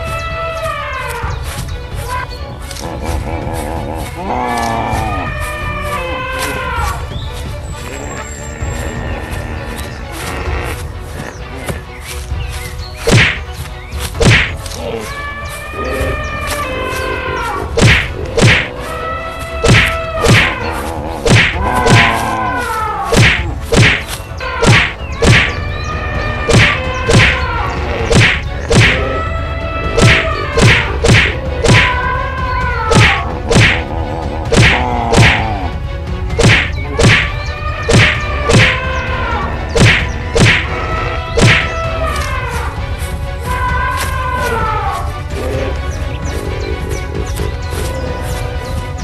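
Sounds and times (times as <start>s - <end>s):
pitched falling calls: 0.0s - 49.0s
loud whacks and thuds: 13.0s - 13.5s, 14.1s - 14.6s, 17.8s - 18.7s, 19.6s - 20.6s, 21.2s - 22.2s, 23.1s - 25.6s, 26.5s - 27.4s, 28.1s - 29.0s, 30.0s - 31.9s, 32.9s - 33.8s, 34.5s - 35.4s, 36.3s - 37.3s, 37.9s - 38.8s, 39.8s - 40.7s, 41.4s - 41.8s.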